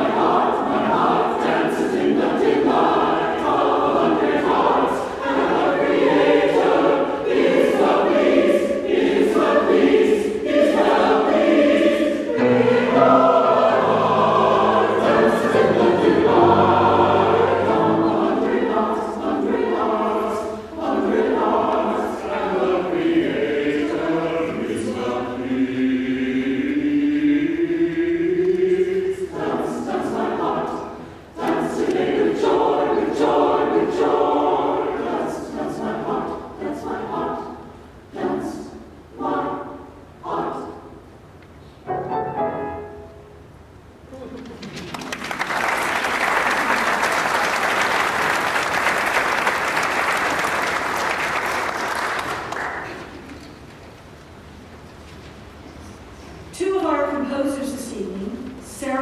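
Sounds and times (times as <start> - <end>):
choir singing in parts: 0.0 - 43.4.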